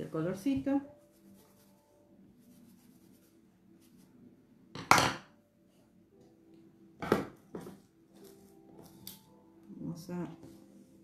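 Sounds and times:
hard objects knocking on wooden table: 7.0s - 7.8s.

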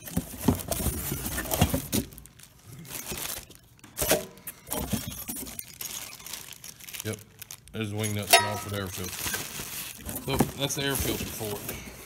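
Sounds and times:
cardboard rustling: 0.0s - 4.1s, 8.7s - 11.9s
plastic wrapping crinkling: 0.0s - 12.0s.

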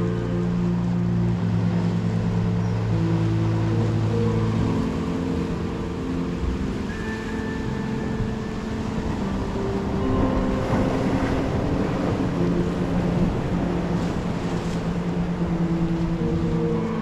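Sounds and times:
ocean surf washing on rocks: 0.0s - 17.0s
wind buffeting microphone: 0.0s - 17.0s.

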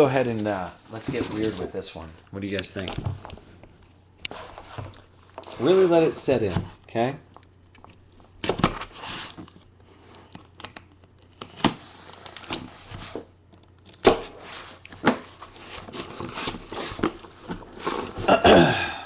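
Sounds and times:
scratchy rustling: 4.3s - 7.0s, 14.4s - 18.3s
cardboard snapping: 13.5s - 18.2s.

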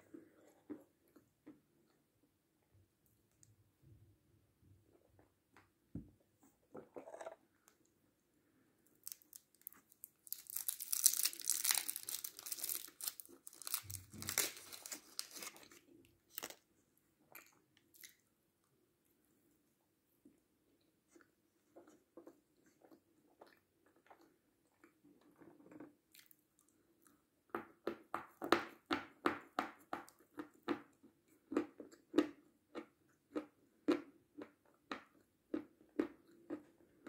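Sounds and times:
foil candy wrapper crinkling: 8.9s - 16.6s.

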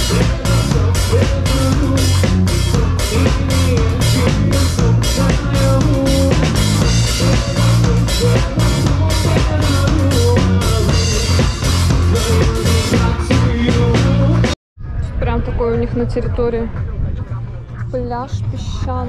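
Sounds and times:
drum kit beat: 0.0s - 14.6s
live band music: 0.0s - 14.6s.

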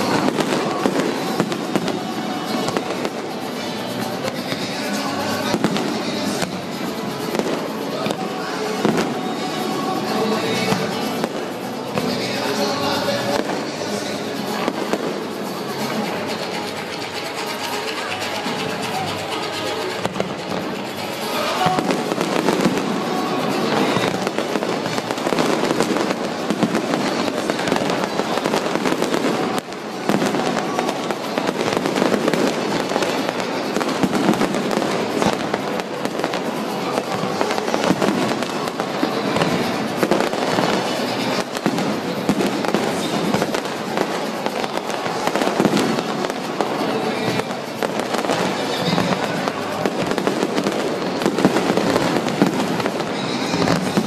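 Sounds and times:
fireworks bangs and crackling: 0.0s - 54.0s
music: 0.0s - 54.0s.

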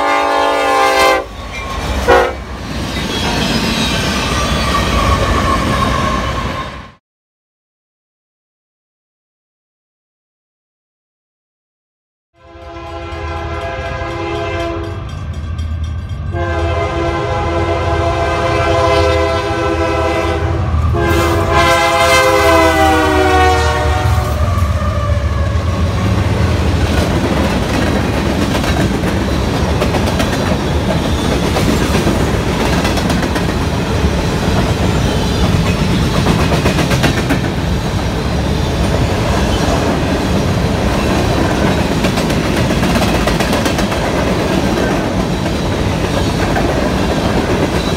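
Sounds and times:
locomotive horn blasts: 0.0s - 1.3s, 2.0s - 2.5s, 12.4s - 15.0s, 16.3s - 25.9s
freight cars rolling on rails: 25.1s - 47.9s.

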